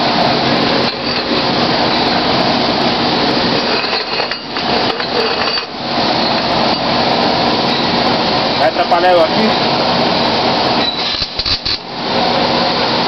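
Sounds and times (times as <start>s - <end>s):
welding arc crackling hiss: 10.3s - 12.2s.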